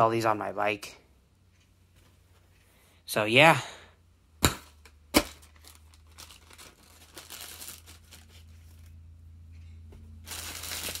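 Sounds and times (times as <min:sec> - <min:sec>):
low steady hum: 0:00.0 - 0:11.0
plastic packing bags crinkling: 0:05.2 - 0:08.9, 0:10.2 - 0:11.0.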